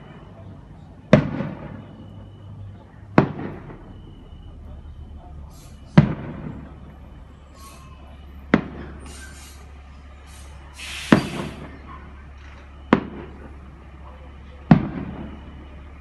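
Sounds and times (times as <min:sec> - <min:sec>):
fireworks hissing: 0:07.5 - 0:08.0, 0:08.9 - 0:11.8
fireworks shells bursting: 0:10.8 - 0:11.7.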